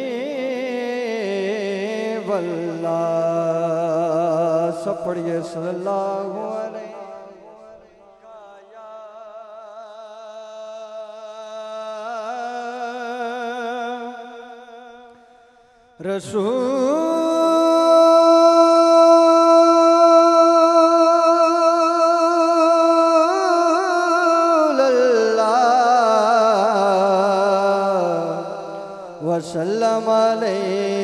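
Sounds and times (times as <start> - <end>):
man singing into a microphone: 0.0 - 31.0.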